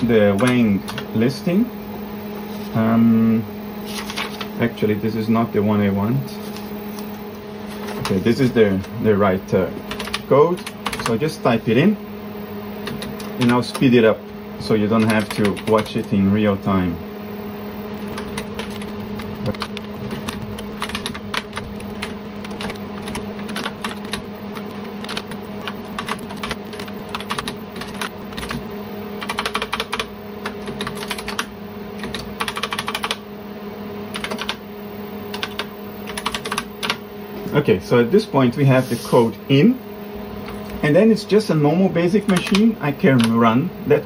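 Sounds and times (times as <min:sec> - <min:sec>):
steady low hum: 0:00.0 - 0:44.0
rapid keyboard key clicks: 0:09.9 - 0:11.2, 0:15.0 - 0:16.0, 0:18.1 - 0:28.6, 0:29.2 - 0:33.2, 0:34.1 - 0:34.6, 0:35.3 - 0:37.0, 0:42.2 - 0:43.4.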